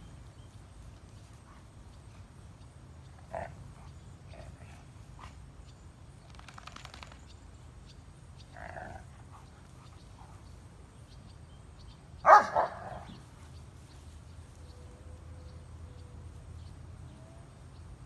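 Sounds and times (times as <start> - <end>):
dog barking: 12.2 - 13.1.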